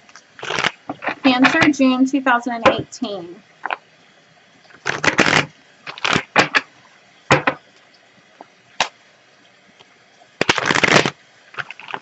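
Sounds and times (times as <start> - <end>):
cards being shuffled: 4.8 - 6.6, 10.4 - 12.0.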